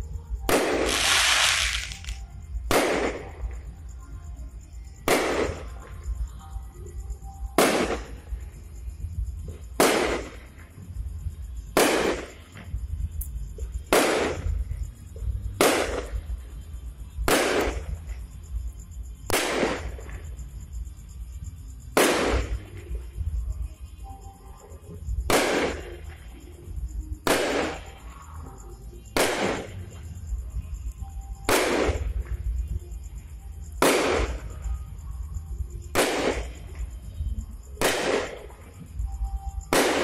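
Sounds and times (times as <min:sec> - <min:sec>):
fireworks bursting: 0:00.4 - 0:03.7, 0:05.0 - 0:05.9, 0:07.5 - 0:08.4, 0:09.5 - 0:10.7, 0:11.6 - 0:12.8, 0:13.6 - 0:16.5, 0:17.2 - 0:18.3, 0:19.2 - 0:20.3, 0:21.9 - 0:23.0, 0:25.2 - 0:26.2, 0:27.2 - 0:28.2, 0:29.1 - 0:30.1, 0:30.9 - 0:32.6, 0:33.8 - 0:34.7, 0:35.9 - 0:36.9, 0:37.8 - 0:38.8, 0:39.7 - 0:40.0.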